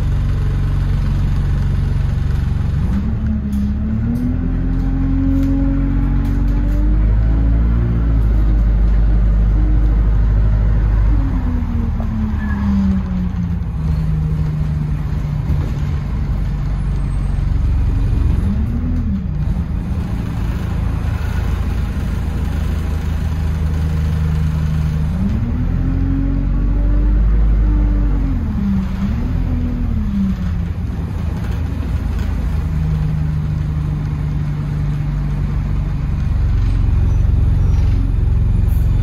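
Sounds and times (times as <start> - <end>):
bus drivetrain rumble and whine: 0.0 - 39.0.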